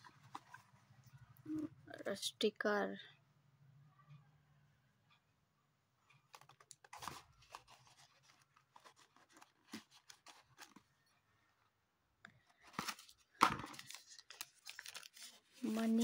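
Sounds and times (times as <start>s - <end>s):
paper and card crinkling: 0.0s - 0.8s, 6.3s - 11.1s, 12.5s - 16.0s.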